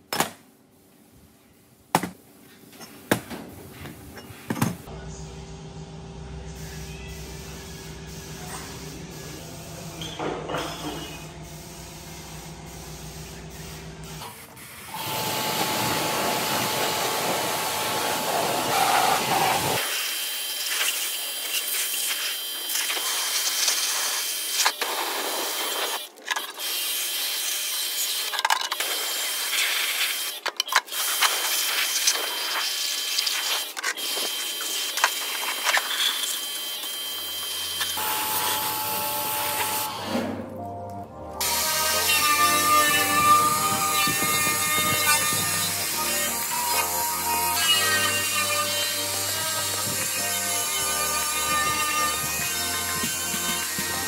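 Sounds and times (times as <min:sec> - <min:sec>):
pressure washer jet hissing: 0:15.0 - 0:19.8.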